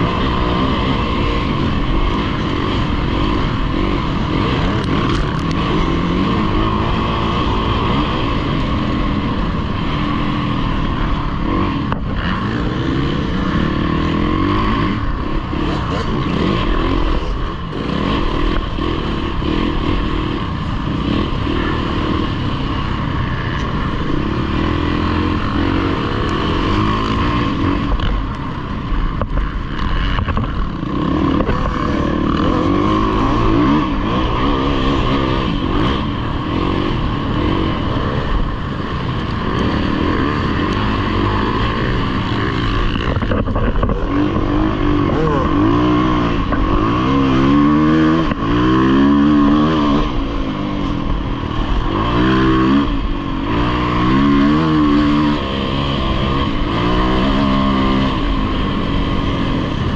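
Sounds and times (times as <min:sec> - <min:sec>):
dirt bike engine revving: 0:00.0 - 0:59.9.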